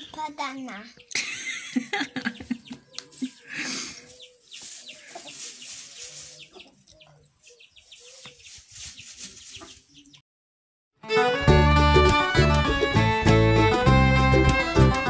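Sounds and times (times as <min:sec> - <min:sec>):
chickens clucking: 0:00.0 - 0:10.2.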